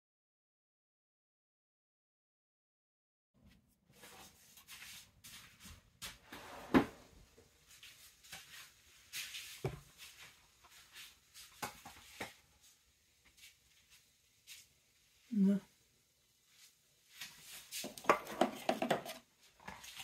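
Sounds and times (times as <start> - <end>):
knocks and clicks of objects set down: 17.8 - 19.2.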